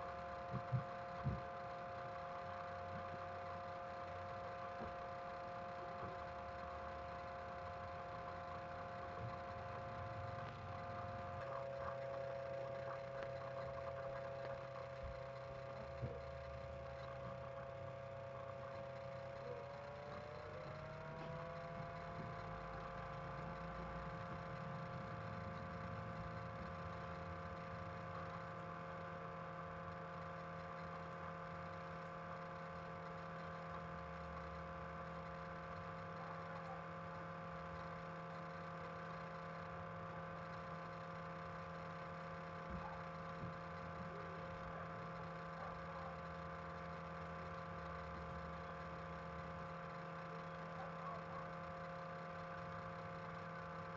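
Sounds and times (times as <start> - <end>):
steady machine hum: 0.0 - 53.9.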